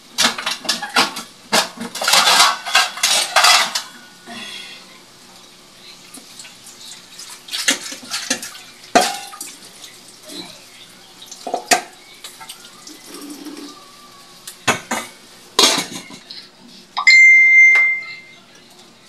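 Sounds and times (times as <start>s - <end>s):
tap water splashing in sink: 7.2s - 9.6s.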